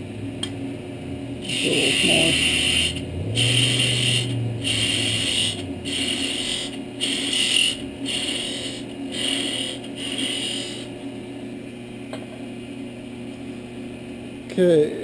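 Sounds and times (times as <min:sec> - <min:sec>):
lathe humming: 0:01.3 - 0:11.1
chisel cutting spinning wood: 0:01.4 - 0:10.9.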